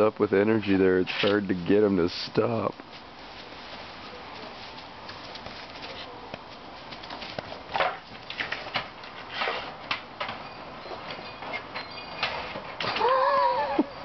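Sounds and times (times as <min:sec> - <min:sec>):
clicks and scuffles: 0:02.8 - 0:10.4.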